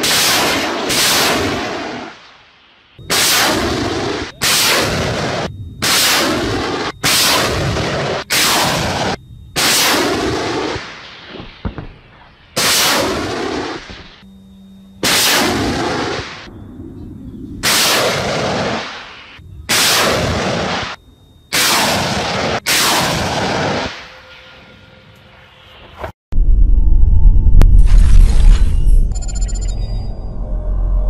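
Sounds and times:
low rumble: 3.0 - 12.6, 26.3 - 31.0
rockets launching with rushing blasts: 3.0 - 14.2, 17.6 - 24.1.

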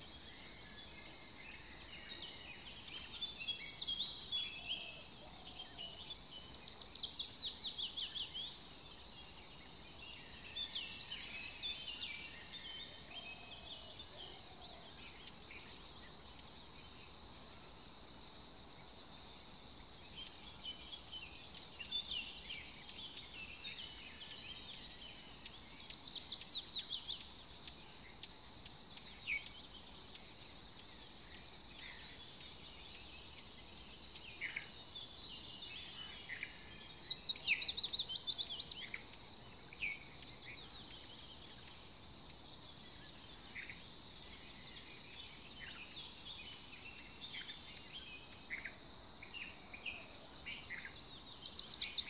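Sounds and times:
birds chirping: 0.0 - 18.0, 18.7 - 52.0.

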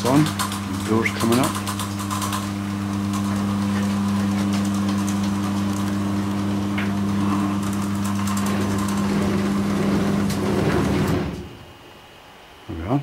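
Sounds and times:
garage door opener humming: 0.0 - 12.4
door clicks and rattles: 6.8 - 11.6.

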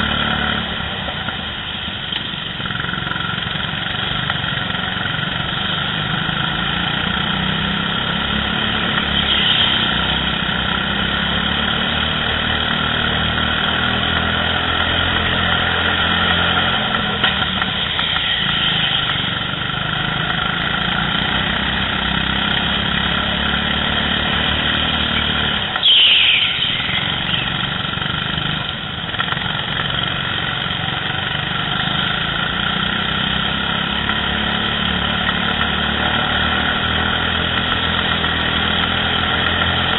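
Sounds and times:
go-kart engines running: 0.0 - 39.9
loud squeal falling in pitch: 25.8 - 27.5.

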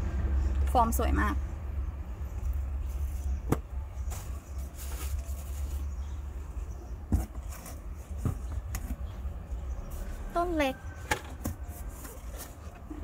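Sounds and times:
steady low rumble: 0.0 - 6.8.

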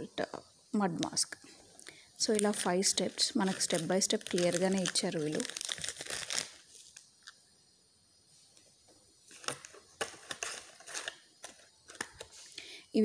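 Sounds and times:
sachets crinkling: 2.2 - 7.4, 9.3 - 12.6
light clicks and rustles of packaging: 3.4 - 7.4, 9.3 - 12.6.

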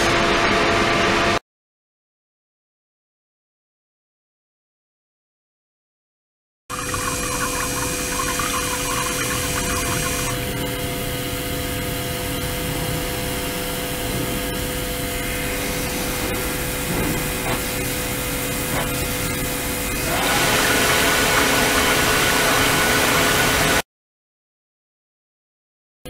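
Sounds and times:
water pouring into tank: 6.7 - 12.5, 14.4 - 23.8
machine hum: 6.7 - 23.8.

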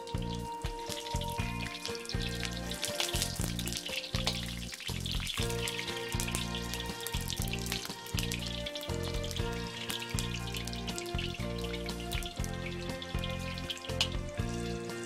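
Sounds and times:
background music: 0.0 - 15.0
eggplant sizzling in hot oil: 0.0 - 15.0.

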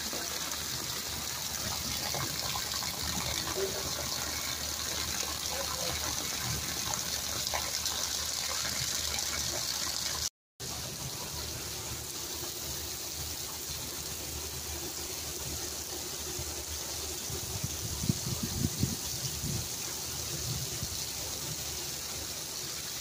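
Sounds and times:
heavy rain on wet ground: 0.0 - 23.0.

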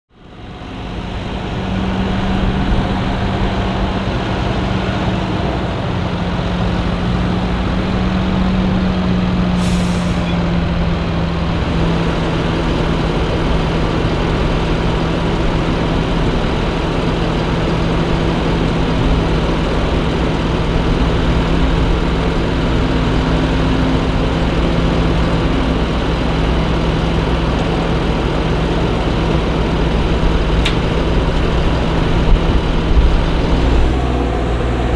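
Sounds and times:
diesel engines humming: 0.1 - 34.9
air hiss: 9.6 - 10.3.

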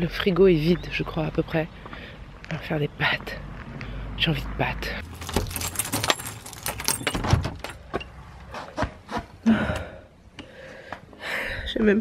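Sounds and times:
key worked in lock: 5.0 - 7.8
keys jangling: 5.0 - 7.8
door opening: 5.0 - 8.0.

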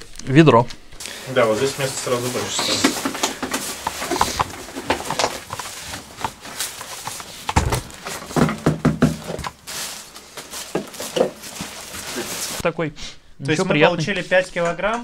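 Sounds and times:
dry meal rustling: 1.0 - 12.6
plastic bag crinkling: 1.0 - 12.6.

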